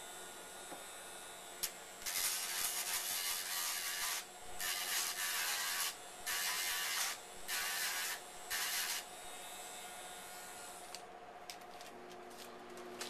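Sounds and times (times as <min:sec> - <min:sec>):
rotary grinder rasping: 0:02.0 - 0:09.1.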